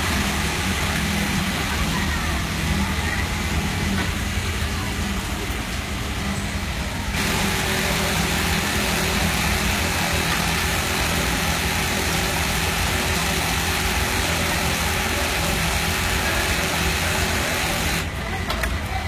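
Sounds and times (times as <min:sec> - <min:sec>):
sewing machine whirring: 0:07.1 - 0:18.1.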